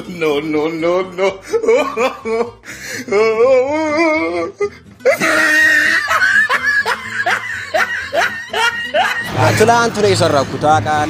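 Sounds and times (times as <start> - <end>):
men laughing: 0.0 - 10.4.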